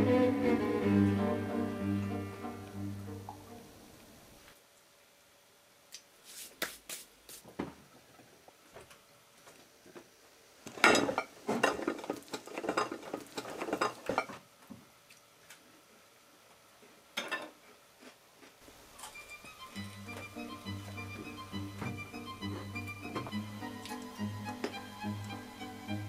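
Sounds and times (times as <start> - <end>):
dishes and cutlery clinking: 10.7 - 14.4, 17.2 - 17.6.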